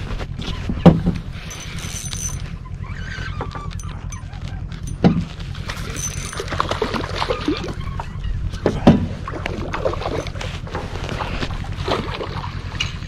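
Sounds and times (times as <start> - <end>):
steady low rumble: 0.0 - 13.0
fishing reel clicking and knocking: 1.4 - 2.5, 5.7 - 6.6
water splashing: 6.4 - 7.8.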